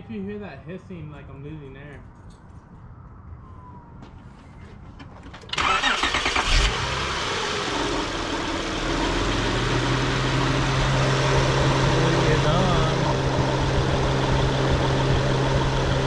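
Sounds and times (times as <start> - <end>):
car engine starting and idling: 5.3 - 16.0.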